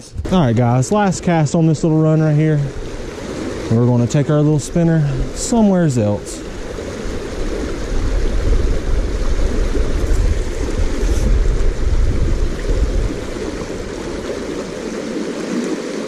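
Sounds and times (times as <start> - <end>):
heavy low rumble: 0.0 - 3.0, 3.6 - 14.0
creek water rushing over gravel: 0.3 - 16.0.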